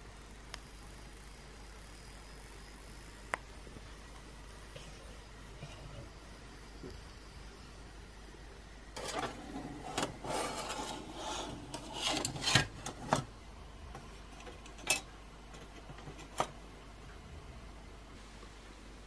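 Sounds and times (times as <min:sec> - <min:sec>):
sheet metal rubbing and scraping: 0:09.0 - 0:13.3.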